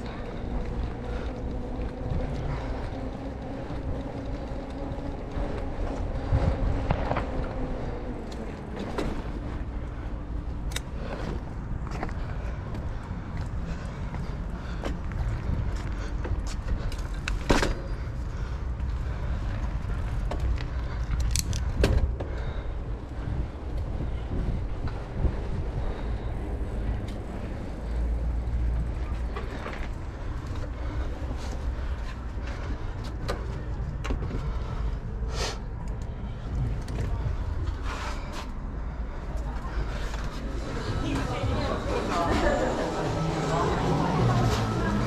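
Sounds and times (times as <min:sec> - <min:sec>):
bike clicks and rattles: 0:00.0 - 0:42.5
bicycle tyres rumbling on bricks: 0:00.0 - 0:45.0
wind on microphone: 0:00.4 - 0:10.4, 0:21.6 - 0:29.2
bike knocks and rattles: 0:14.8 - 0:18.4, 0:19.5 - 0:22.4.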